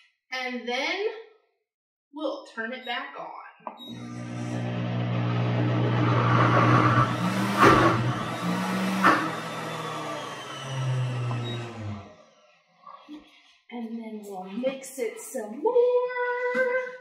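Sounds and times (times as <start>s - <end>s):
blender motor humming: 3.8s - 12.5s.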